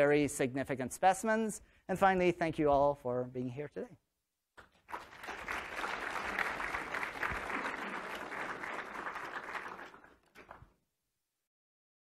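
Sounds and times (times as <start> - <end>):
audience applauding: 4.6 - 10.8.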